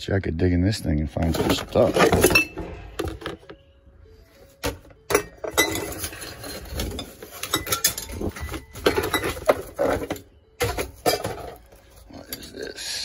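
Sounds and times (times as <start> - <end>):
jars and bottles clinking together: 1.1 - 3.4, 4.7 - 12.5.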